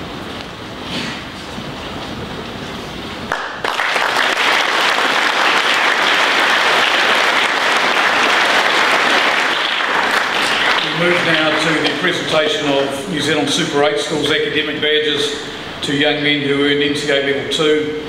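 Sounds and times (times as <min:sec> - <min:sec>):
low background noise: 0:00.0 - 0:18.0
large audience clapping: 0:03.3 - 0:12.7.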